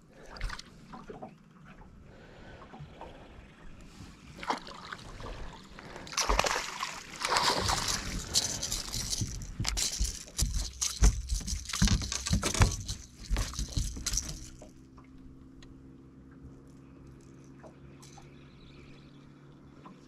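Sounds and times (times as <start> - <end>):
low steady hum: 0.0 - 20.0
faint clicks of fish in net: 6.0 - 12.5
water splattering off a net: 6.1 - 8.6
net and fish thumping on deck: 6.1 - 14.7.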